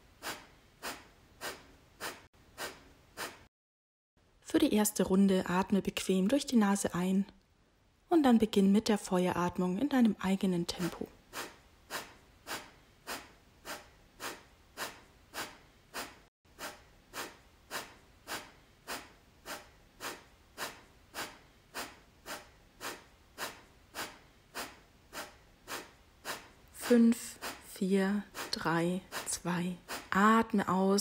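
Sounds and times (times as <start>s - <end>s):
forceful nasal exhalations: 0.1s - 3.5s, 11.2s - 30.2s.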